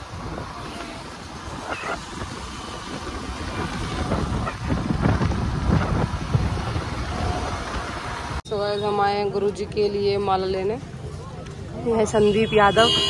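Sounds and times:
wind rumble on microphone: 0:00.0 - 0:08.4.

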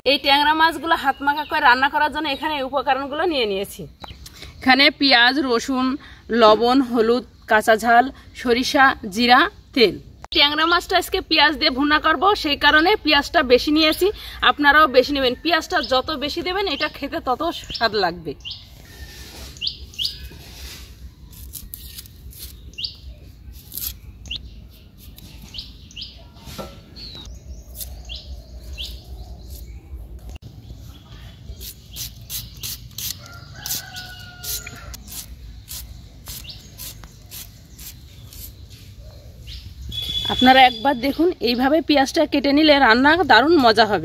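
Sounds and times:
small birds chirping: 0:00.6 - 0:05.2, 0:15.8 - 0:42.2
knife cutting onions: 0:23.5 - 0:24.0, 0:31.6 - 0:38.6
rooster crowing: 0:33.2 - 0:35.0.

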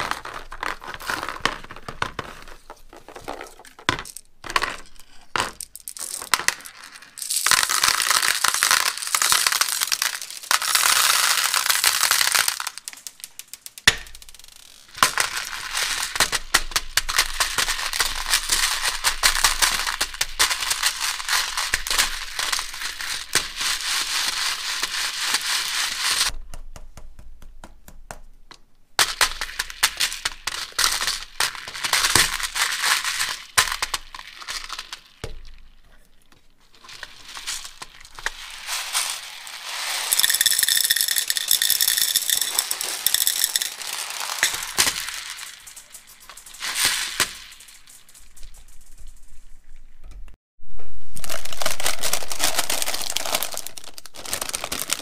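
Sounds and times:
toys rattling and clicking: 0:40.0 - 0:49.8.

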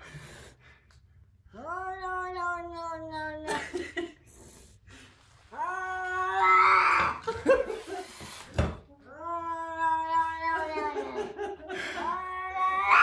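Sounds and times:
cat yowling: 0:01.6 - 0:03.6, 0:05.6 - 0:07.2, 0:09.1 - 0:11.2, 0:12.0 - 0:13.0
thump: 0:08.5 - 0:08.8.

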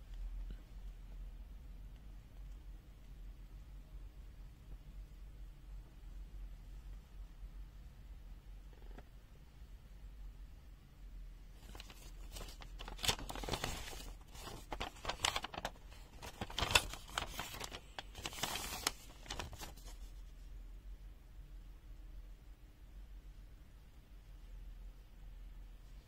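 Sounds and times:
paper and packaging rustling: 0:11.6 - 0:20.2.

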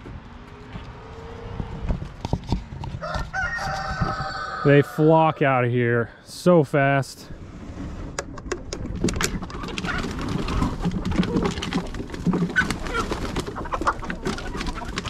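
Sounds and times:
chickens clucking: 0:08.7 - 0:15.0
feet and wings fluttering on wood: 0:08.7 - 0:15.0.

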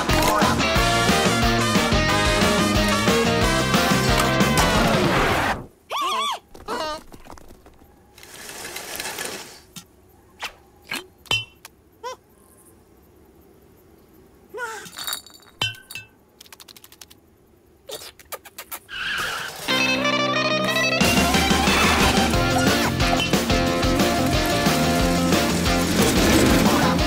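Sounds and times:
squeaky cartoon character noises: 0:05.9 - 0:07.1, 0:21.0 - 0:23.4
glass bottle clinking: 0:14.9 - 0:16.2.

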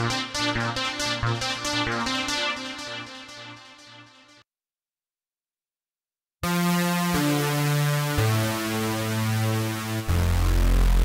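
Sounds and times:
synthesizer chords: 0:00.0 - 0:04.4, 0:06.4 - 0:11.0
synth patch with heavy bass: 0:06.4 - 0:11.0.

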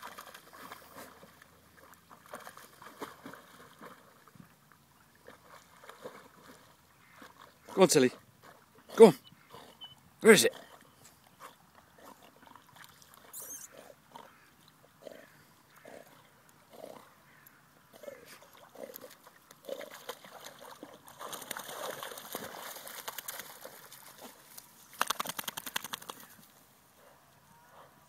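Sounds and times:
water splashing: 0:00.0 - 0:04.4, 0:05.1 - 0:08.6, 0:18.4 - 0:26.2.

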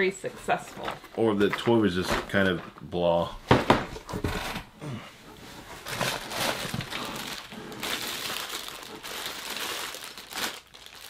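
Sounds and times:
plastic bag crinkling: 0:05.6 - 0:11.0.

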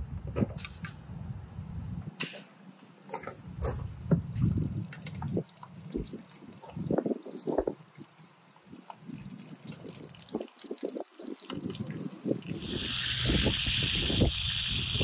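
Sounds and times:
liquid splashing and dripping: 0:04.3 - 0:13.4.

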